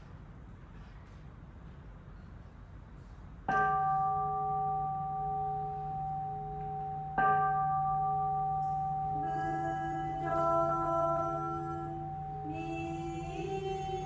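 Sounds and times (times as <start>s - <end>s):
temple bell ringing: 3.5s - 14.0s.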